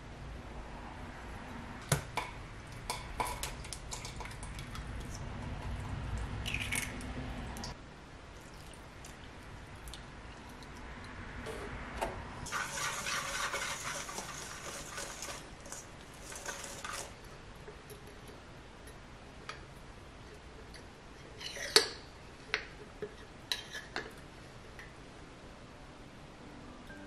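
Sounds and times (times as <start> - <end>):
whisk scraping metal bowl: 12.5 - 17.2.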